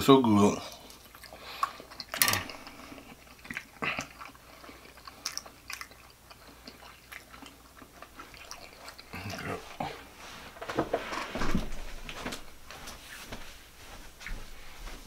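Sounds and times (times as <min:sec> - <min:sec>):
wet chewing and mouth smacking: 0:00.6 - 0:10.2.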